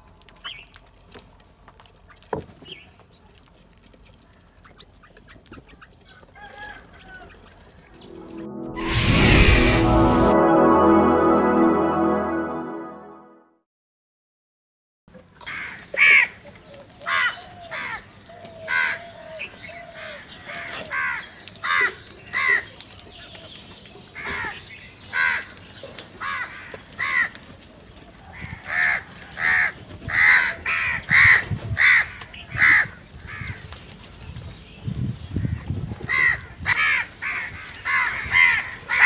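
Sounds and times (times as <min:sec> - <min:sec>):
crows cawing: 0:18.6 - 0:19.2, 0:19.8 - 0:22.7, 0:26.2 - 0:27.4, 0:28.3 - 0:33.6, 0:36.1 - 0:39.0.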